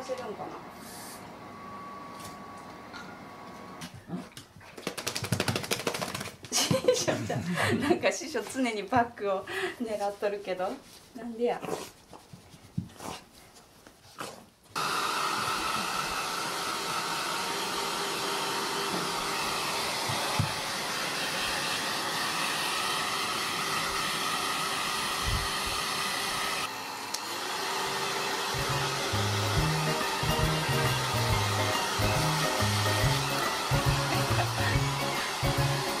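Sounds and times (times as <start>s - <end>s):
hair dryer blowing: 0.0s - 3.8s, 14.8s - 36.0s
background music with low notes: 28.6s - 36.0s.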